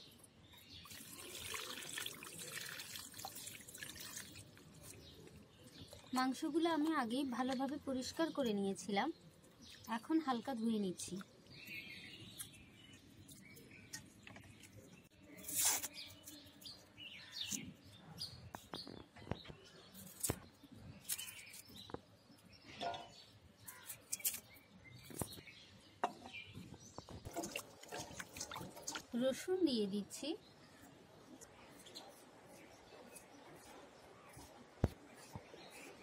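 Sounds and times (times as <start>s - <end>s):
birds chirping: 4.8s - 36.0s
light water splashing: 27.2s - 29.4s.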